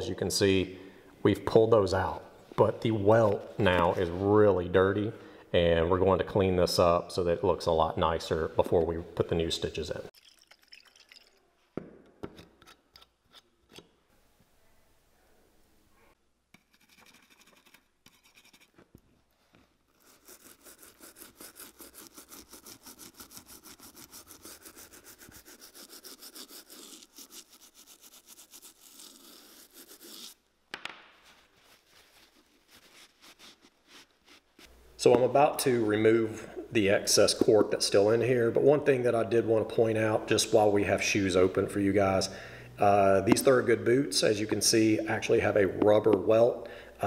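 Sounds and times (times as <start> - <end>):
brush scrubbing rubber: 16.9 - 30.4, 31.2 - 34.7.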